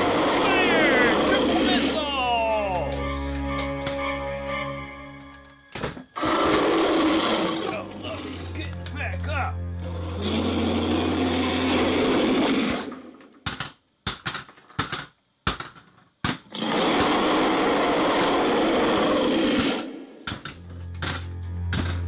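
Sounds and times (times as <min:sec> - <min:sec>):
loud grinding buzz: 0:00.0 - 0:02.1, 0:06.2 - 0:08.5, 0:09.8 - 0:13.0, 0:16.5 - 0:20.0.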